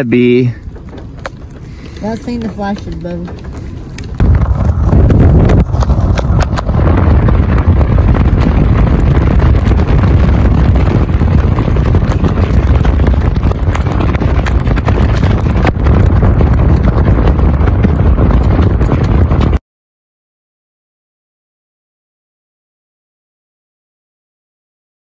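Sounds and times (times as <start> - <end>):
wind buffeting microphone: 0.2 - 19.6.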